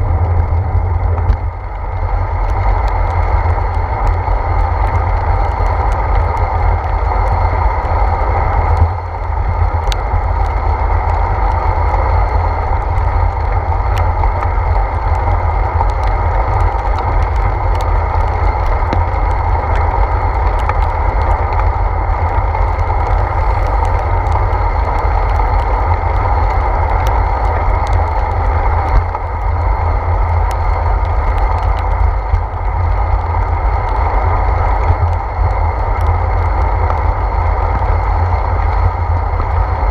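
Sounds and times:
bicycle rolling on wet pavement: 0:00.0 - 0:39.9
wind buffeting: 0:00.0 - 0:39.9
faint ticks: 0:08.7 - 0:39.6.

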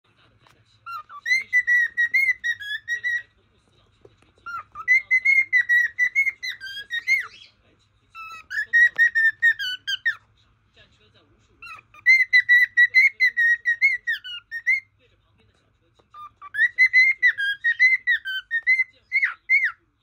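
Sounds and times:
cockatiel whistling: 0:00.9 - 0:03.3, 0:04.4 - 0:07.5, 0:08.2 - 0:10.2, 0:11.6 - 0:14.9, 0:16.1 - 0:19.8.

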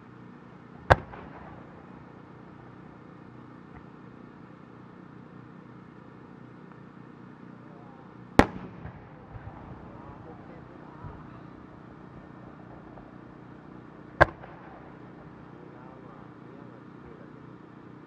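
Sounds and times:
firework burst boom with echo: 0:00.8 - 0:01.9, 0:08.4 - 0:11.8, 0:14.1 - 0:15.2
firework shell launch boom: 0:14.2 - 0:14.8.

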